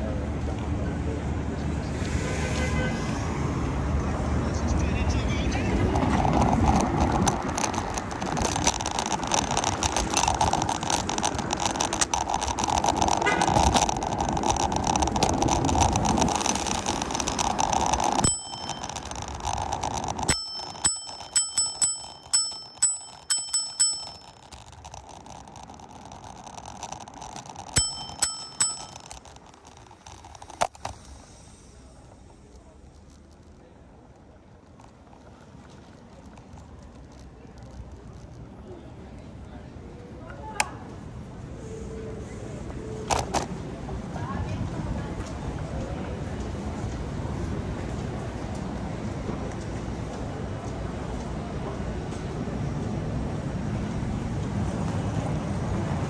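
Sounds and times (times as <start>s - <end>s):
city traffic noise: 0.0s - 56.0s
bicycle bell dings: 16.4s - 25.4s, 26.2s - 29.8s.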